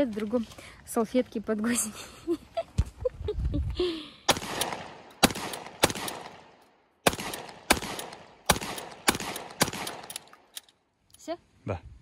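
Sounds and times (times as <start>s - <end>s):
shotgun shots: 4.3s - 10.3s.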